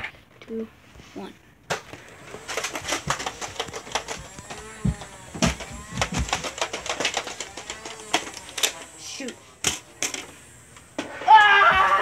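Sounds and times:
toy blaster clicks and snaps: 0:02.4 - 0:11.0.

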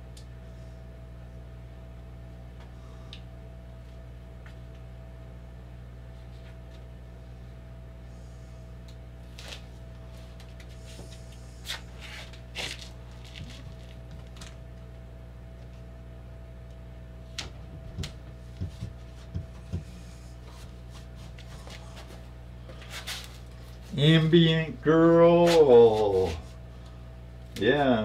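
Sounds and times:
low electrical hum: 0:00.0 - 0:28.0
palm thumping on wood: 0:17.4 - 0:20.8.

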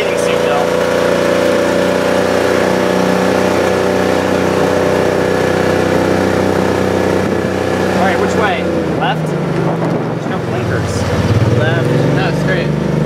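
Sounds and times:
utility vehicle engine droning: 0:00.0 - 0:13.0.

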